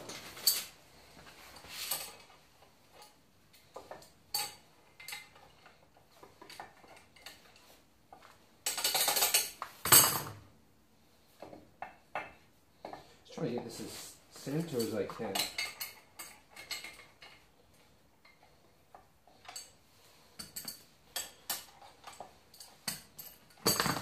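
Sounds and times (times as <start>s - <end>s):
metal tools clinking and knocking: 1.5s - 7.7s, 8.6s - 10.4s, 14.4s - 17.5s, 20.4s - 24.0s.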